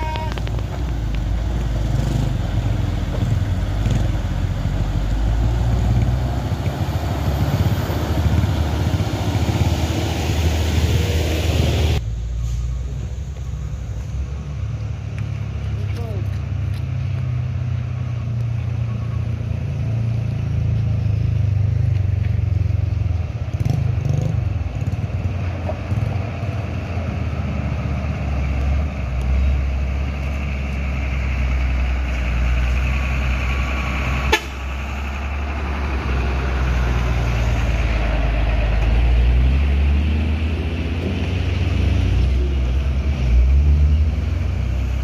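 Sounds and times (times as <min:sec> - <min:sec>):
diesel truck engine rumble: 0:00.0 - 0:45.0.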